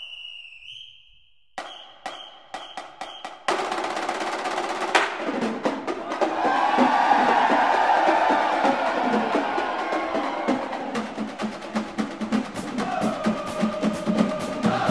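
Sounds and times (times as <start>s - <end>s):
referee's whistle: 0.0s - 3.5s
snare drum strikes: 1.6s - 9.0s
fast drum roll: 2.6s - 14.9s.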